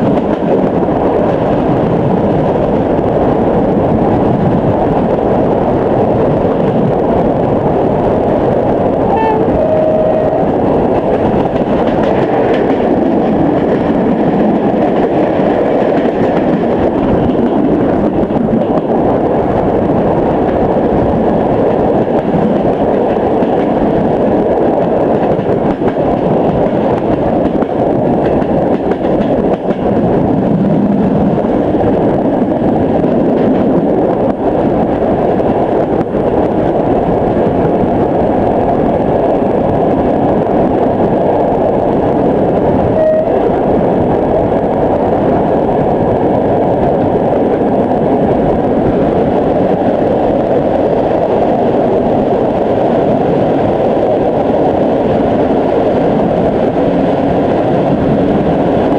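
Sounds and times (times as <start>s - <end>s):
train wheels on rails: 0.0s - 58.9s
short high tone: 9.1s - 10.5s, 43.0s - 43.4s.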